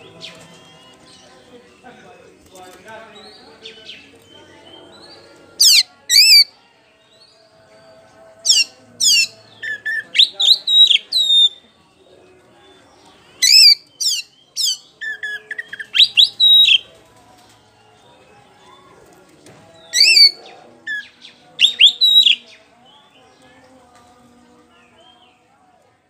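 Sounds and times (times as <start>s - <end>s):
bird singing whistles: 8.5s - 11.6s, 13.4s - 16.8s, 19.8s - 22.5s.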